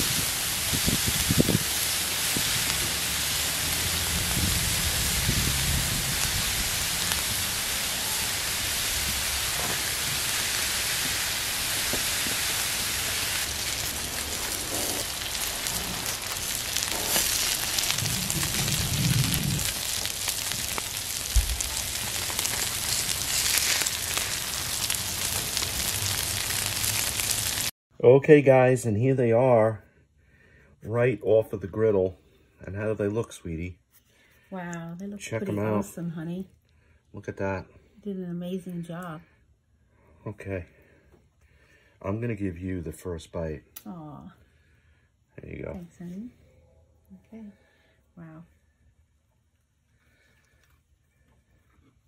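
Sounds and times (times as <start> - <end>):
onions and patties sizzling on griddle: 0.0 - 27.7.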